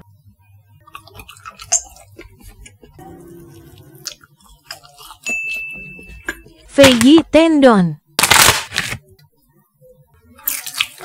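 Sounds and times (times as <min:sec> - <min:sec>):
chewing with wet clicks: 0:00.9 - 0:03.0, 0:03.6 - 0:05.4.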